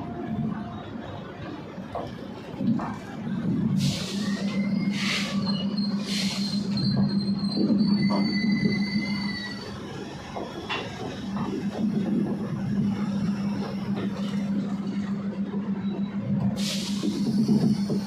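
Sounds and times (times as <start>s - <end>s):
train coaches rolling on rails: 0.0s - 18.0s
high wheel squeal: 3.9s - 10.2s.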